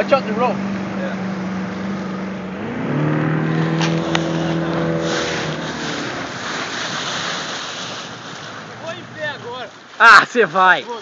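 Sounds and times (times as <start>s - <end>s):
motorboat engine throttling: 0.0s - 9.5s
rushing water: 0.0s - 11.0s
wind: 0.0s - 11.0s.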